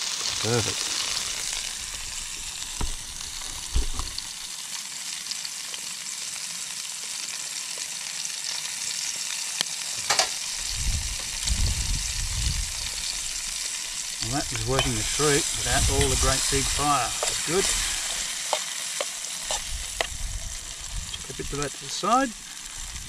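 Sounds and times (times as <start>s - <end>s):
vegetables sizzling in a pan: 0.0s - 23.0s
low rumble: 19.6s - 21.3s.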